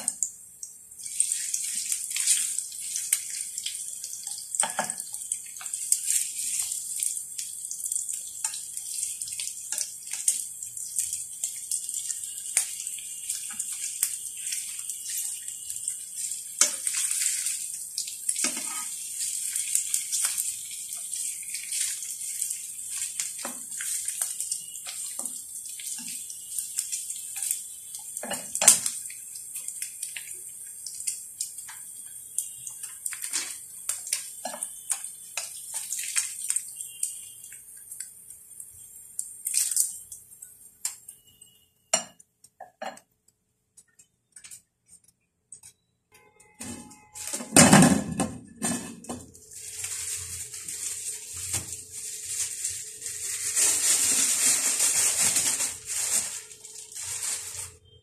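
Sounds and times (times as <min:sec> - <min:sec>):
meat sizzling in hot oil: 0:01.0 - 0:41.0, 0:49.4 - 0:57.8.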